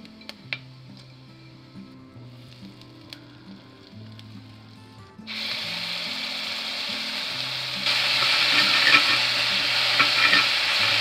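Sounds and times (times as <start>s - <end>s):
paste sizzling in hot oil: 5.3s - 11.0s
spatula scraping and tapping pan: 7.9s - 11.0s.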